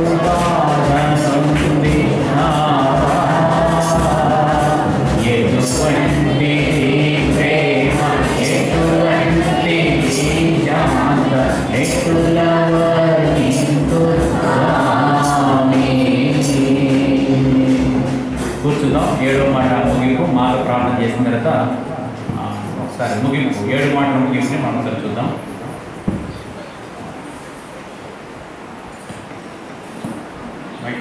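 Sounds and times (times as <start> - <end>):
man singing a hymn into a microphone: 0.0 - 21.6
instrumental accompaniment: 0.0 - 22.8
steady percussion beat: 0.0 - 24.0.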